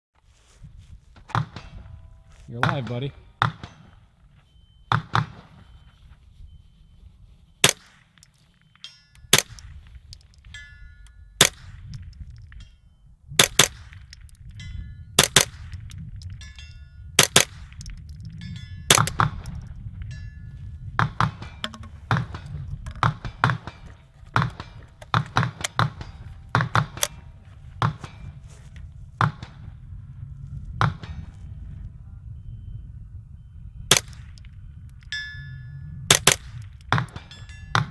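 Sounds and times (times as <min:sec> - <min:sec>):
rifle shots: 0:07.6 - 0:08.2, 0:13.4 - 0:14.2, 0:15.2 - 0:15.8, 0:17.2 - 0:17.9, 0:18.9 - 0:19.5, 0:33.9 - 0:34.4, 0:36.1 - 0:37.3
bullet ringing on steel target: 0:07.6 - 0:28.3, 0:33.9 - 0:37.9.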